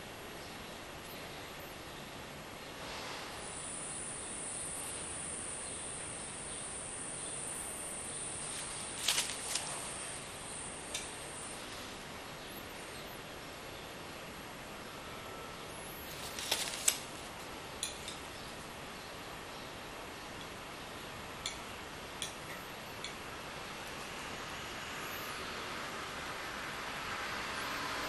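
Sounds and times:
steady hiss: 0.0s - 28.0s
thin high whine: 2.8s - 12.1s.

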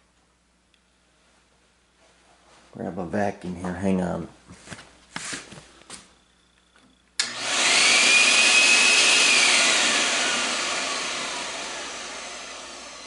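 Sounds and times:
vacuum cleaner motor whine: 7.2s - 13.0s.

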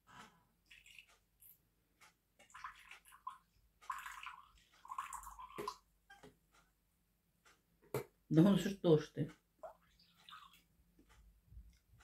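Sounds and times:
vinegar pouring into a glass: 2.5s - 5.8s.

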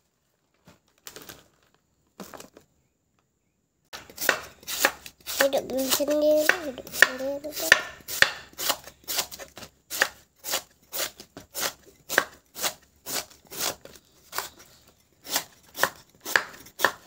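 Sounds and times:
knife slicing on cutting board: 4.0s - 17.0s.

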